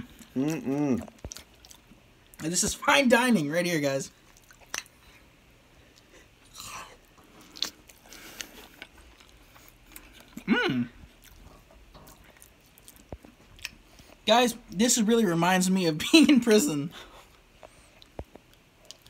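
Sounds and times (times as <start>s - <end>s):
quiet chewing: 0.0s - 2.5s, 4.2s - 14.8s, 17.0s - 19.0s.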